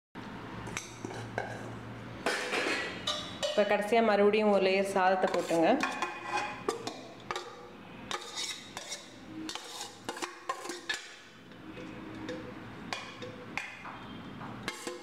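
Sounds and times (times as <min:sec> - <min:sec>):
spoon scraping steel pot: 0:05.1 - 0:15.0.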